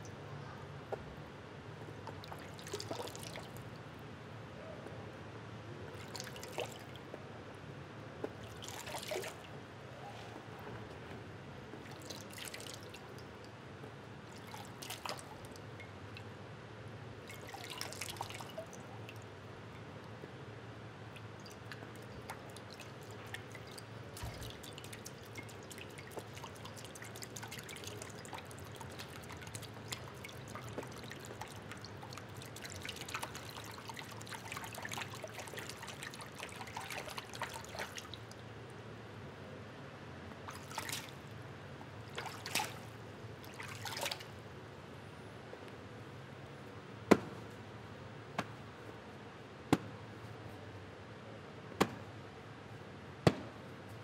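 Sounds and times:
patter of drip-like ticks: 1.8 - 3.9, 21.1 - 38.8.

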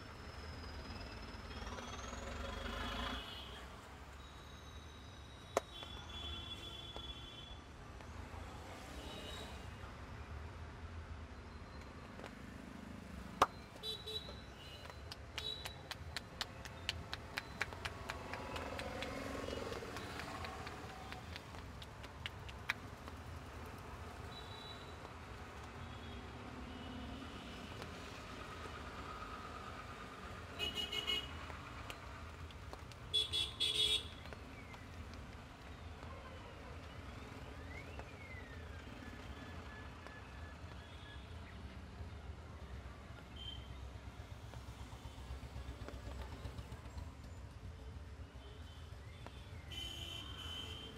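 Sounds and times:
vehicle on wet road: 1.2 - 4.1, 14.6 - 40.2
hands tapping on scalp: 14.9 - 23.2
vehicle horn honking: 30.6 - 31.3.

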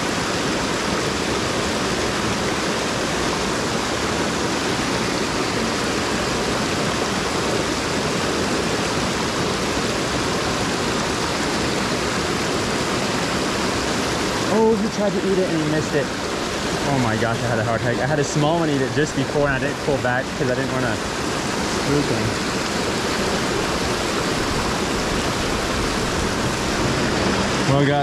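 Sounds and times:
small waterfall rushing: 0.0 - 28.0.

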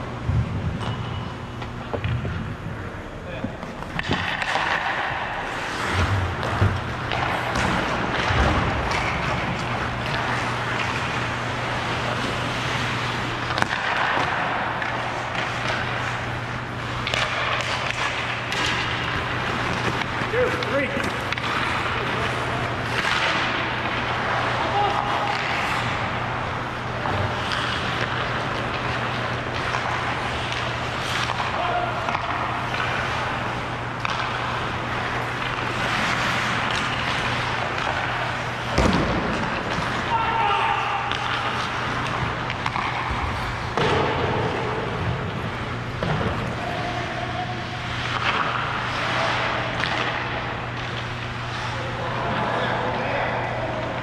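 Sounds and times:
steady low hum: 0.0 - 54.0
hockey stick clicks: 3.6 - 11.2, 12.2 - 16.2, 16.9 - 22.1, 27.0 - 40.1, 41.0 - 44.4, 47.9 - 51.4
ice skate blades scraping: 4.0 - 45.7.

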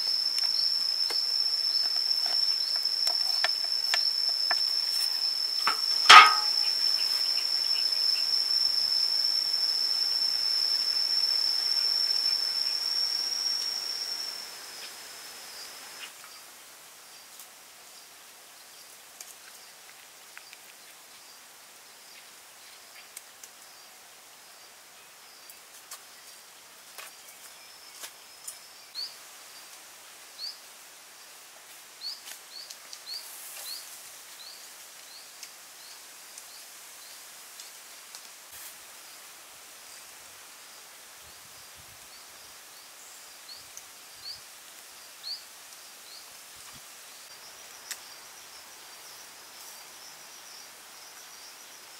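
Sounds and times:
bird chirping: 0.0 - 8.8
high insect drone: 0.0 - 17.2, 38.8 - 51.9.

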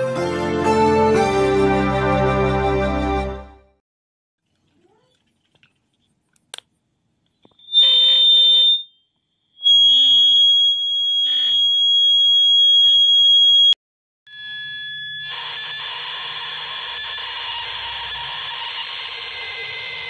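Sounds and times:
radio feedback squealing: 7.5 - 9.0, 9.6 - 13.7, 14.3 - 20.0
steady high whistle: 7.5 - 15.8.

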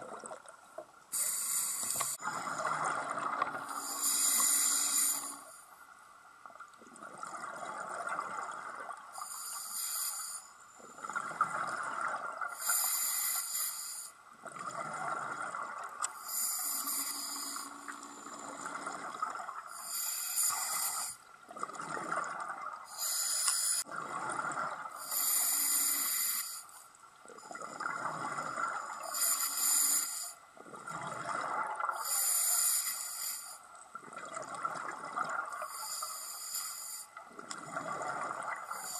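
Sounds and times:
hissing inhale through regulator: 1.1 - 2.3, 3.6 - 5.8, 9.2 - 11.2, 12.5 - 14.2, 16.2 - 18.6, 19.7 - 21.2, 22.9 - 23.9, 25.0 - 26.8, 28.9 - 30.4, 32.0 - 33.6, 35.6 - 37.2, 38.6 - 38.9.

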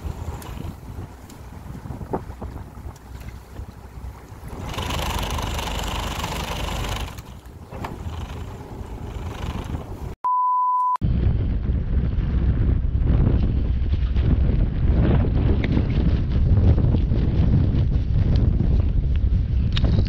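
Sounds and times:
wind buffeting microphone: 0.0 - 10.2, 11.0 - 20.0
short steady beep: 10.2 - 11.0.

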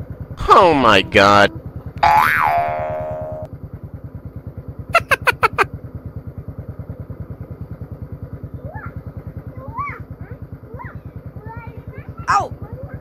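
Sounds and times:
motorcycle engine idling: 0.0 - 0.7, 1.5 - 13.0
quick high chirps: 5.0 - 5.7.

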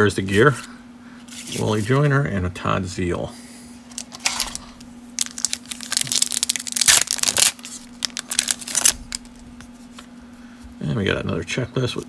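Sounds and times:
foil wrapper crinkling and tearing: 3.9 - 9.4.

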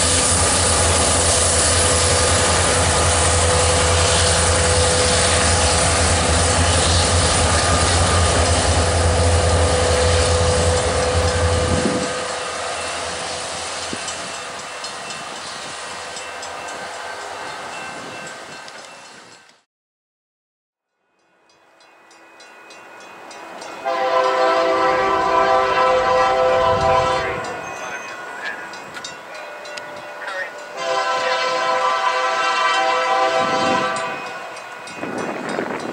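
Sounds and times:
diesel locomotive drone: 0.0 - 19.6, 21.2 - 35.9
low rumble of train: 0.0 - 19.7, 21.0 - 35.9
locomotive air horn: 23.8 - 27.6, 30.8 - 34.6
constant high tone: 27.4 - 31.4.

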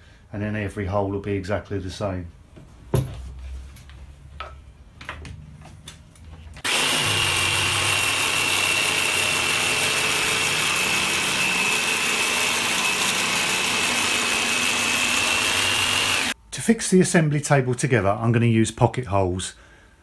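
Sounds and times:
jigsaw cutting with high whine: 6.6 - 16.4.

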